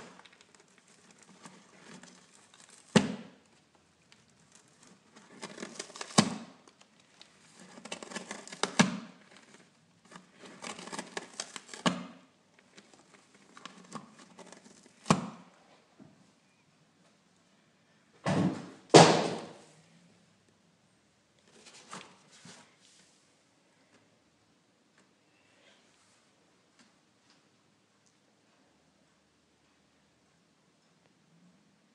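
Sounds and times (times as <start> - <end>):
kitten scratching cardboard: 0.0 - 3.3, 4.3 - 15.5.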